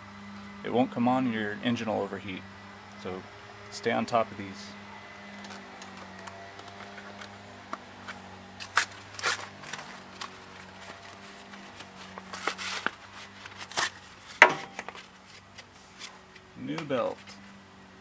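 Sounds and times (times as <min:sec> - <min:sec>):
rubber belt rustling in gloved hands: 0:05.4 - 0:16.5.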